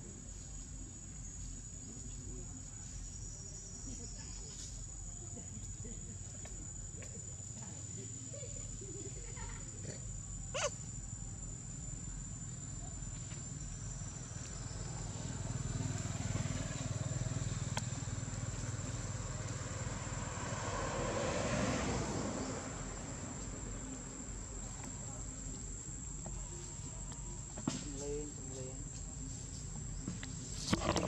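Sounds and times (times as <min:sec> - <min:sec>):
high-pitched insect whine: 0:00.0 - 0:31.0
short squeak: 0:10.5 - 0:10.8
distant motor vehicle rumble: 0:12.0 - 0:31.0.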